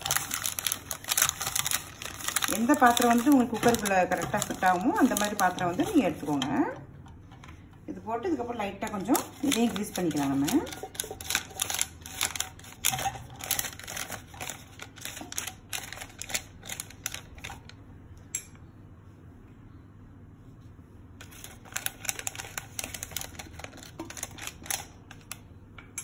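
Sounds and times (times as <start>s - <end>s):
paper crinkling and crackling: 0.0s - 6.8s, 8.6s - 17.7s, 21.2s - 25.4s.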